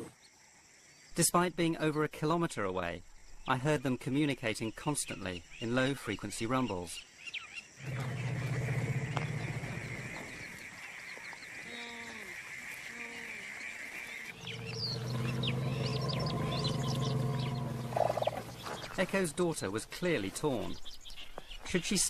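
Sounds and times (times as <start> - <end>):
birds chirping: 0.0 - 22.0
elephants rumbling: 7.8 - 20.6.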